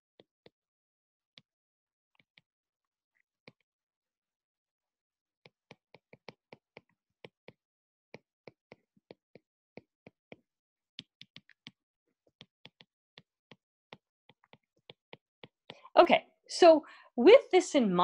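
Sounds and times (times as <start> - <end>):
stylus ticking on tablet screen: 5.5 - 15.9.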